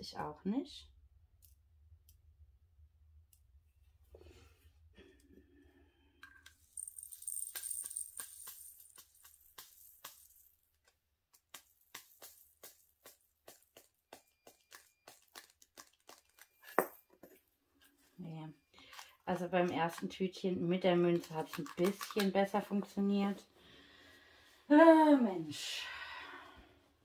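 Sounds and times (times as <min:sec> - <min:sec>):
beads pouring into plastic bag: 0:06.7 - 0:10.5.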